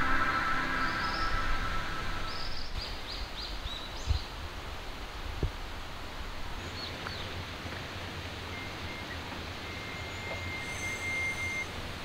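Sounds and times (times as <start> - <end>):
thin steady high tone: 0.0 - 2.7, 8.5 - 11.8
outdoor background noise: 0.0 - 12.0
faint short chirps: 8.6 - 11.7.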